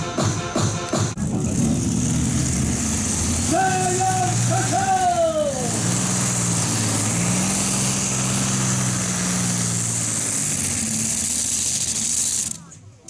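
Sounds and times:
tractor engine drone under load: 0.0 - 13.0.

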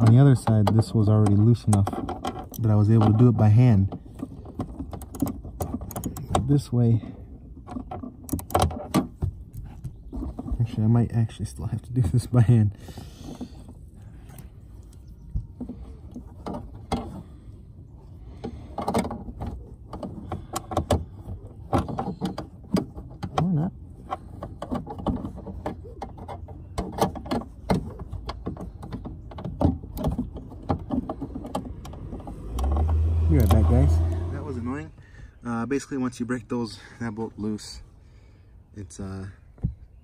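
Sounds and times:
metal and plastic knocking: 0.0 - 6.6, 18.4 - 33.6.

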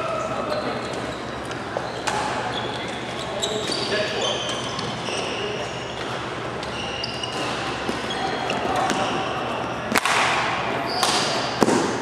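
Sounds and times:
shoes squeaking on court floor: 0.2 - 9.9
racket hitting shuttlecock: 9.9 - 12.0.

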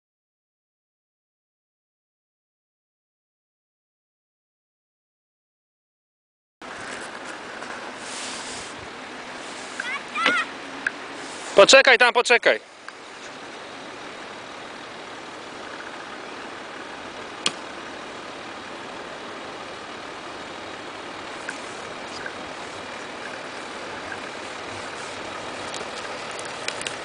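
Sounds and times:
car engine running low: 6.6 - 27.0.

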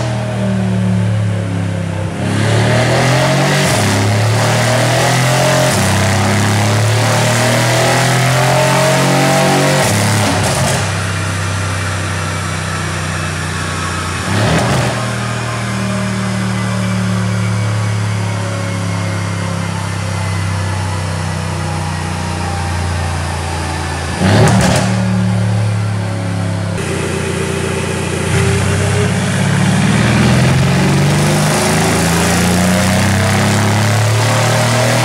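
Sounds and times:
loud engine exhaust roar: 0.0 - 35.0
loud exhaust burst: 26.8 - 35.0.

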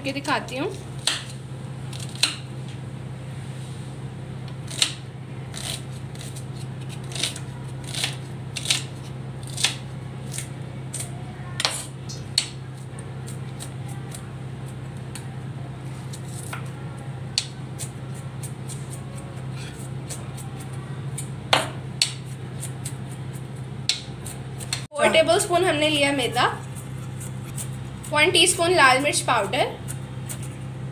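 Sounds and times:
steady low hum: 0.0 - 30.9
knife chopping on board: 21.2 - 24.9.

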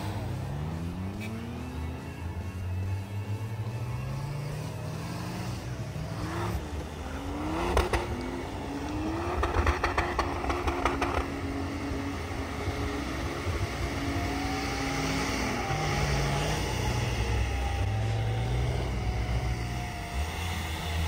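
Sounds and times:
off-road engines revving: 0.0 - 21.0.

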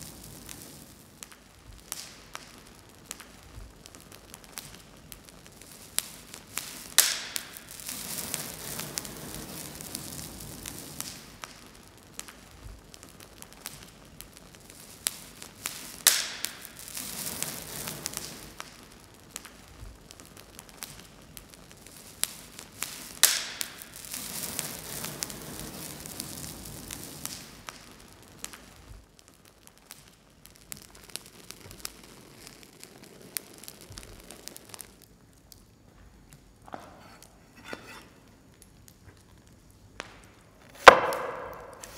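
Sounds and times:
hissing: 0.0 - 35.6
wood fire crackling: 0.0 - 41.9
loud sharp bang: 40.8 - 41.9.

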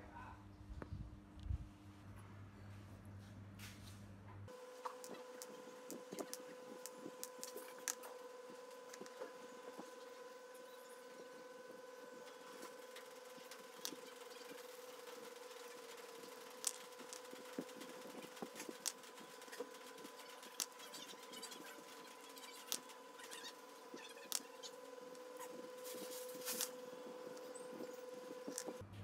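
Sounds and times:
faint hum: 0.0 - 29.0
screwdriver clicks and ticks: 16.6 - 17.7.

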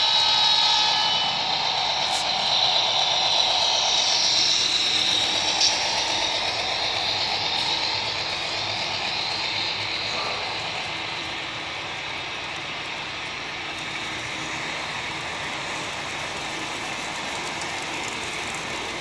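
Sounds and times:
model train wheels rolling on rails: 0.0 - 19.0.

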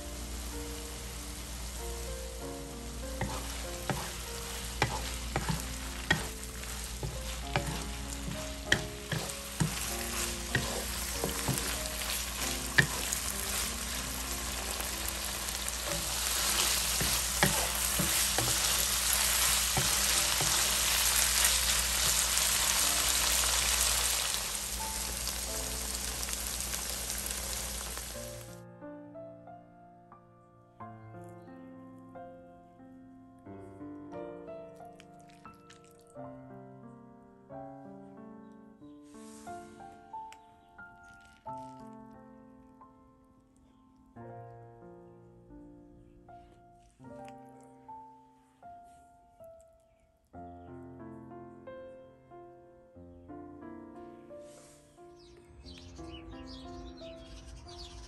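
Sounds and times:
meat sizzling in a frying pan: 0.0 - 28.6
stirring clicks and scrapes on pan: 3.2 - 15.0, 15.7 - 22.6.

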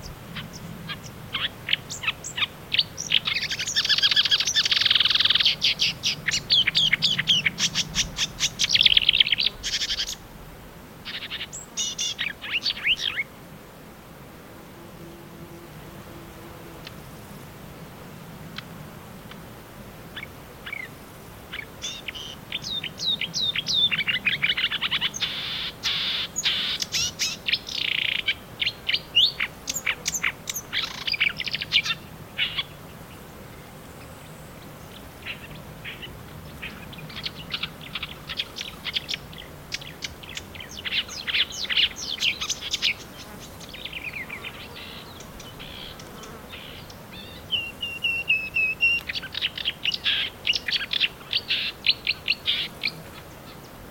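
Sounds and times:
warbler singing: 0.0 - 10.2, 21.6 - 33.2, 34.8 - 53.8.

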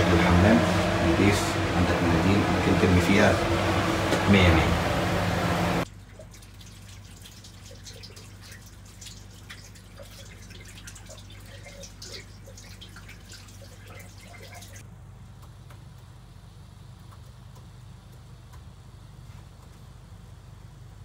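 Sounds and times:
steady low hum: 0.0 - 21.0
tap water splashing into basin: 5.9 - 14.8.

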